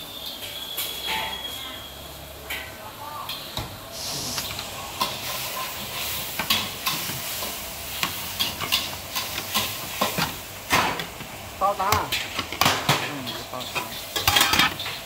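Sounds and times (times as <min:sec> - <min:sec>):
noodles sizzling in a wok: 0:00.0 - 0:15.0
spatula clanking on wok: 0:05.0 - 0:15.0
plates clinking: 0:11.9 - 0:15.0.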